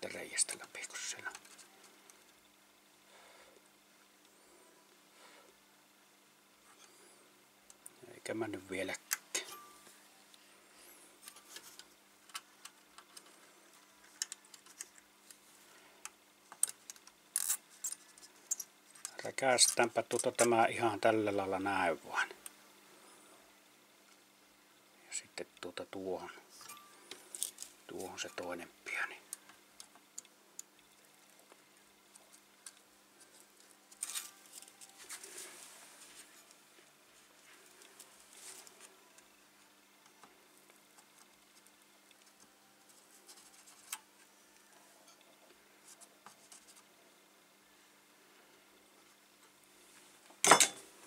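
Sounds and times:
faint steady hum: 0.0 - 51.0
soldering iron ticks and crackles: 29.3 - 34.0.

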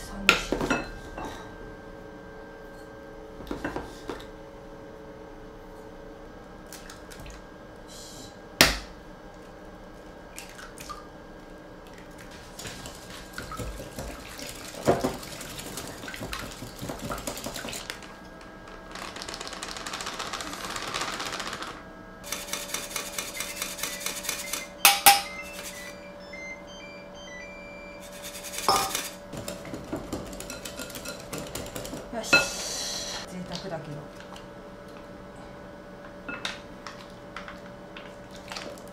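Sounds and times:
utensils clinking on bowls: 0.4 - 1.5, 23.0 - 26.0, 28.1 - 32.6, 36.3 - 36.6
whisk beating against glass bowl: 22.3 - 26.0, 28.0 - 32.5.

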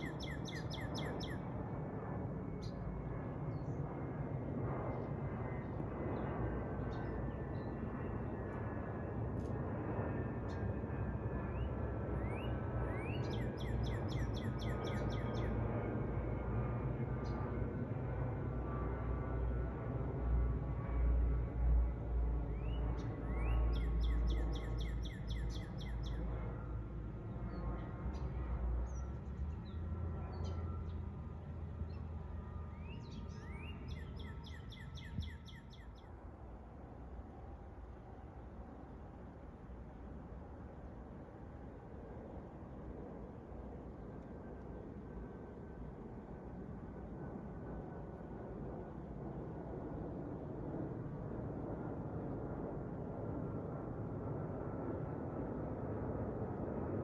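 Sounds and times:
faint bird chirps: 0.0 - 1.5, 22.6 - 26.3, 32.8 - 36.1
songbird singing: 0.0 - 1.6, 11.5 - 15.6, 22.5 - 26.4, 27.3 - 36.2
jet airliner rumble overhead: 0.0 - 57.0.

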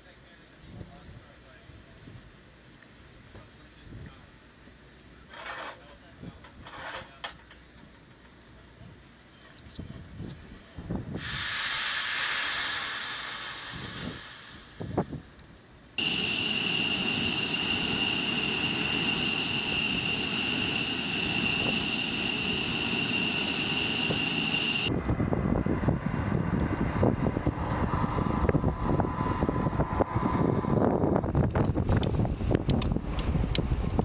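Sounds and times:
jet engine turbine whine: 11.2 - 15.2, 16.0 - 34.0
wind on microphone: 13.6 - 15.3, 23.8 - 34.0.

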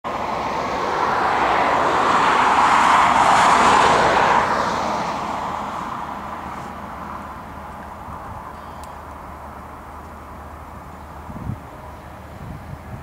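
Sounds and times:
jet engines roaring: 0.1 - 13.0.

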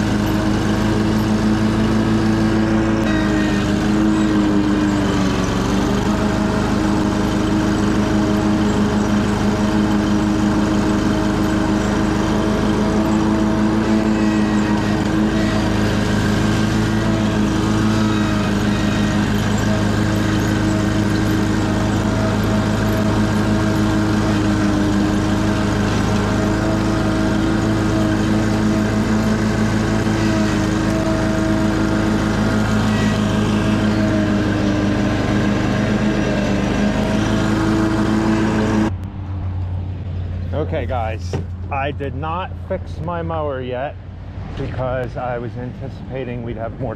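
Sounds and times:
lawn mower engine running: 0.0 - 46.9.

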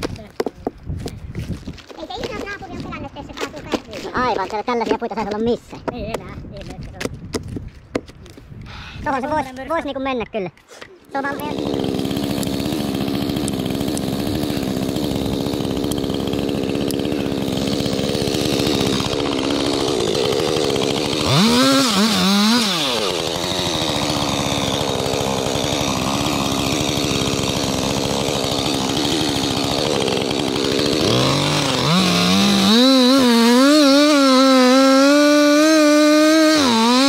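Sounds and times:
chainsaw running at high revs: 11.2 - 37.0.

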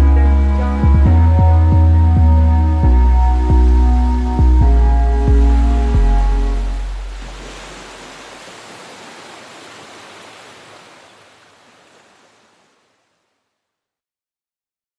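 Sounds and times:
wide noise hiss: 3.4 - 13.6.

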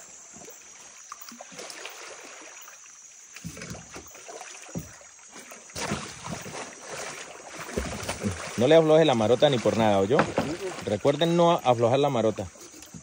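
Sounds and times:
water splashing against a canoe: 0.0 - 13.0
soft knocks: 10.0 - 10.8.

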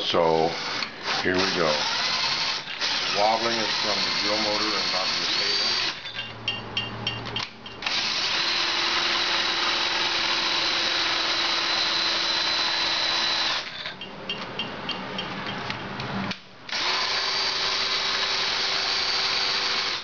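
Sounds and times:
electric drill motor whine: 0.3 - 6.3, 7.8 - 14.0, 16.7 - 20.0
regular ticking: 5.8 - 16.1.

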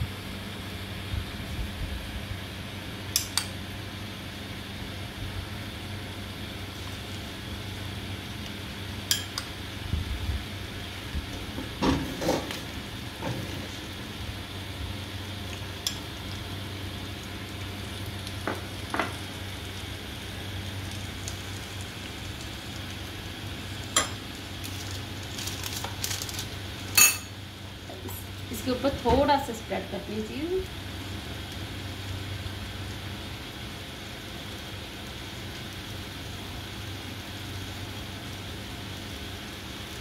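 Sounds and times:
bread sizzling on hot plates: 0.1 - 40.0
spoon clinking on glass bowl: 27.0 - 27.3.

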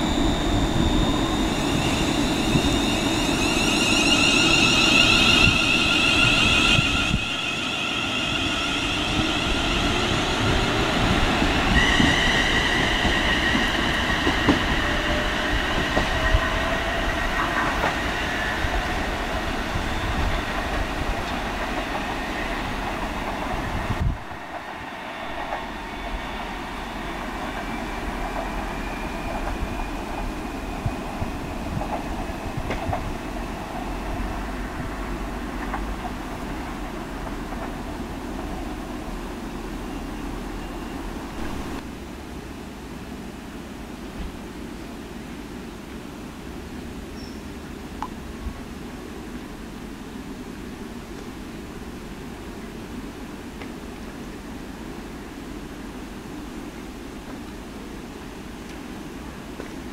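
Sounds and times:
train traction motors whining: 0.0 - 21.4
wheel and rail noise: 0.0 - 42.5, 44.0 - 59.9.

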